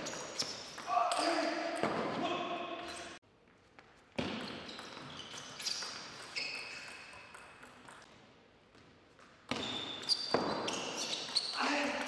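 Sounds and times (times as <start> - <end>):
short high squeaks: 4.5 - 7.4, 9.5 - 11.8.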